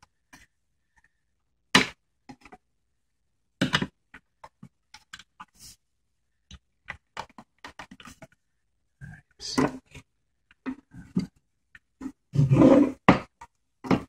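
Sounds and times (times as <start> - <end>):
plastic parts knocking: 12.9 - 14.0.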